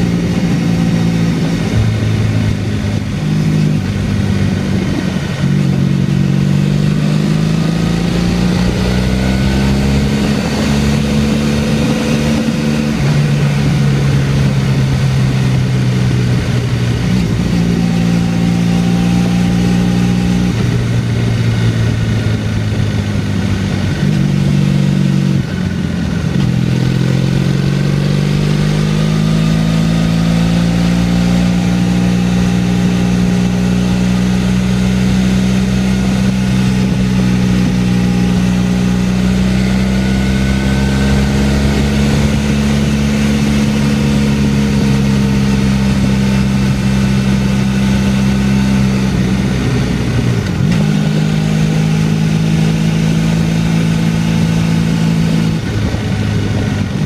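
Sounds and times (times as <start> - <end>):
motorcycle engine running: 0.0 - 57.0
wind rush: 0.0 - 57.0.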